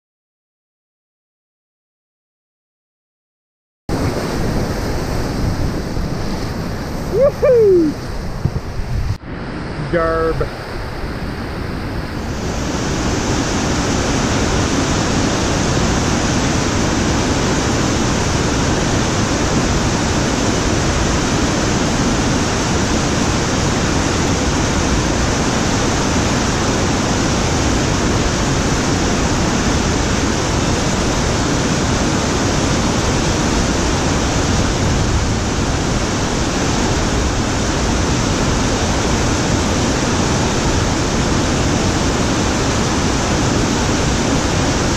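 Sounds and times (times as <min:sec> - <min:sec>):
whitewater rapid rushing over rock: 0:03.9 - 0:08.8, 0:09.4 - 0:44.9.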